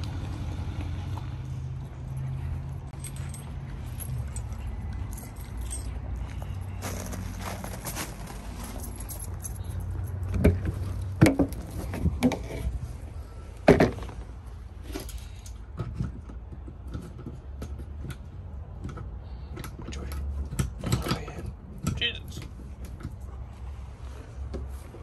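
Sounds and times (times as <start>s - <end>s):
knocks and thumps of climbing: 0.8s - 23.7s.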